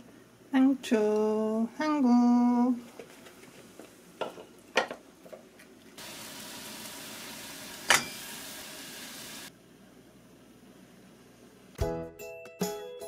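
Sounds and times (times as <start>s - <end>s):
steady hiss: 6.0s - 9.5s.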